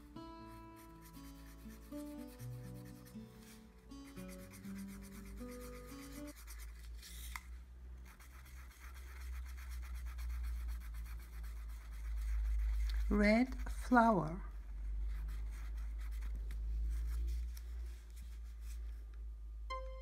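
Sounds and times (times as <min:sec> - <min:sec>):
background music with held notes: 0:00.0 - 0:06.6, 0:19.5 - 0:20.0
marker scribbling on paper: 0:00.8 - 0:07.1, 0:08.1 - 0:14.0, 0:15.0 - 0:18.8.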